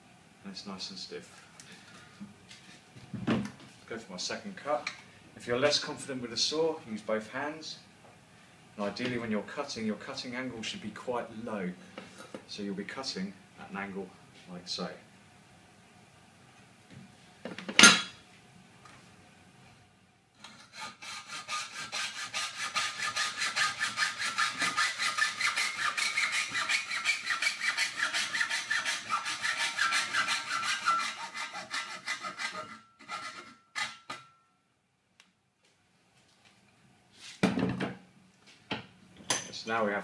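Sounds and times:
hacksaw cutting steel: 0:20.4 - 0:34.4.

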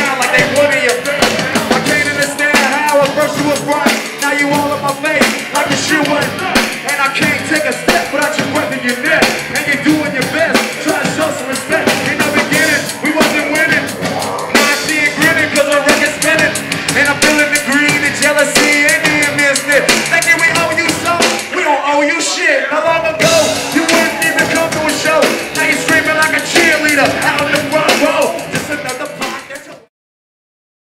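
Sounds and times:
electric guitar: 0:00.0 - 0:21.5
pounding drum kit: 0:00.0 - 0:21.6, 0:22.9 - 0:29.9
live rock band playing: 0:00.0 - 0:21.8, 0:22.9 - 0:29.9.

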